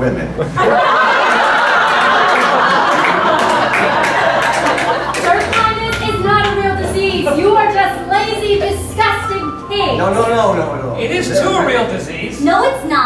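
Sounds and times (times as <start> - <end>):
audience laughing: 0.1 - 8.0
audience clapping: 0.7 - 6.8.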